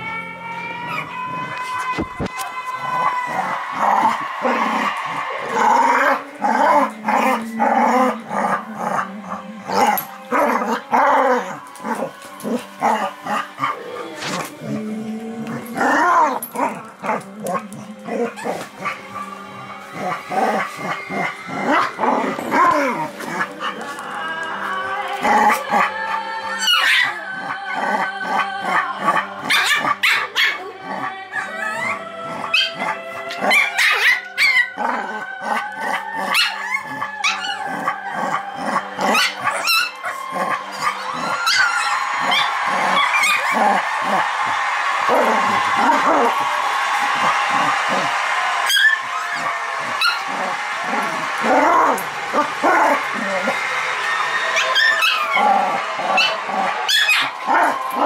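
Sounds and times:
dogs growling and barking: 0.8 - 53.8, 54.5 - 58.0.

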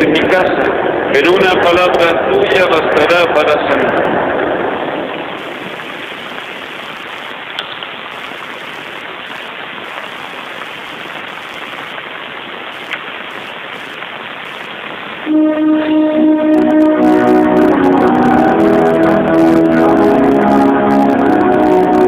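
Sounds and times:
room noise hiss: 0.0 - 22.0
music with held notes: 15.3 - 22.0.

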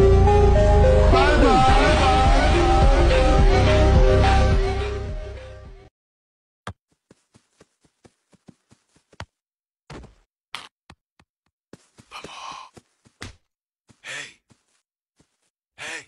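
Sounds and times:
person sighing: 12.1 - 12.8.

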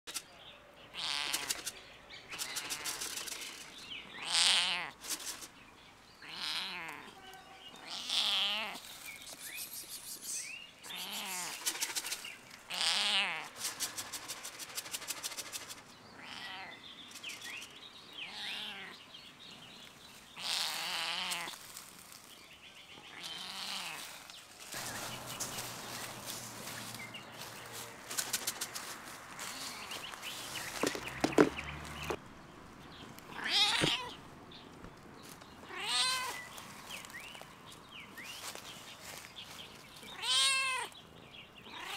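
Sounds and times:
cat meowing: 4.2 - 4.9, 6.2 - 8.8, 16.2 - 16.7, 18.3 - 19.0, 20.4 - 21.5, 33.4 - 34.2, 35.7 - 36.4, 40.1 - 41.0, 41.7 - 41.9.

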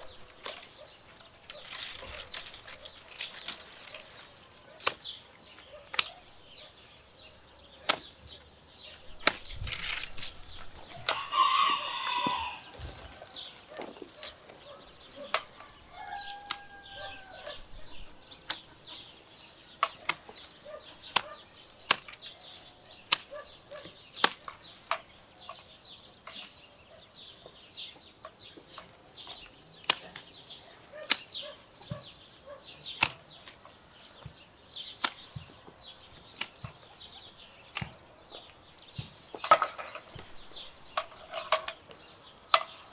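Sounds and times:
pruning shears snipping branches: 0.0 - 6.9, 7.8 - 8.4, 9.0 - 17.6, 18.4 - 19.0, 19.6 - 25.6, 28.2 - 42.8
branches rustling: 0.0 - 26.6, 28.2 - 42.9
chicken calling: 10.9 - 18.2.

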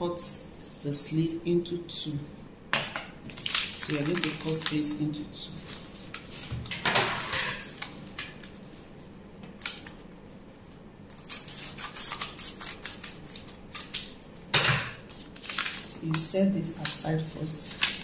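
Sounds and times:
scissors snipping paper: 11.1 - 14.2.

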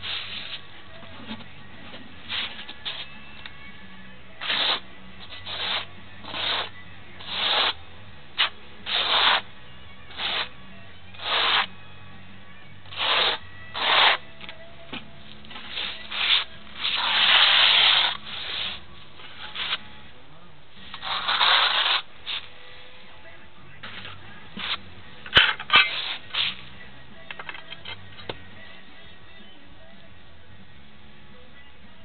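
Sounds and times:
trowel scraping mortar on concrete: 4.4 - 7.8, 8.4 - 9.4, 10.1 - 10.5, 11.2 - 11.7, 12.9 - 14.2, 15.6 - 18.8, 20.9 - 22.5, 24.6 - 26.6.

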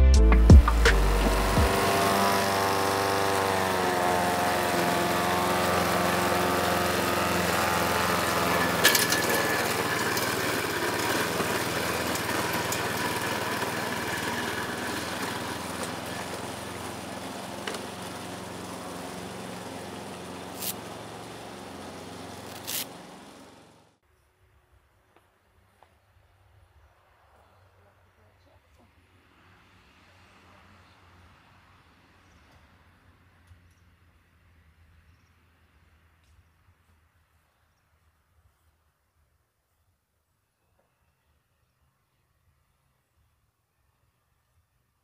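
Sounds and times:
lawn mowers running: 0.4 - 24.0.

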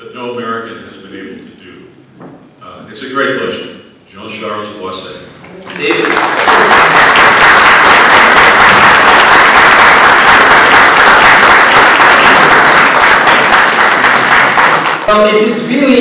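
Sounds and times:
audience applauding: 5.6 - 15.2.

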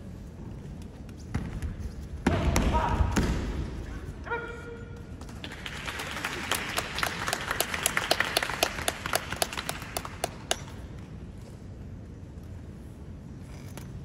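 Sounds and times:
spectators clapping in a hall: 5.2 - 10.9.

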